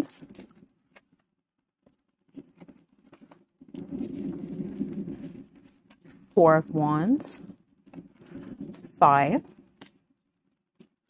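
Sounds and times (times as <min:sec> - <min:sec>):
cards sliding and rubbing: 0:01.9 - 0:06.3.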